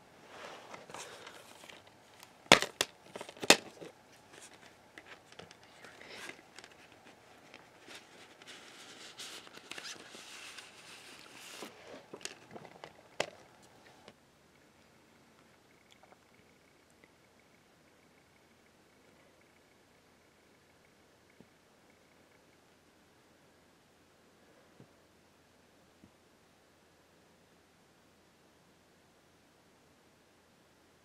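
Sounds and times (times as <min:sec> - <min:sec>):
paper rustling and crinkling: 0:00.3 - 0:14.1
plastic case snapping open: 0:02.5 - 0:03.9.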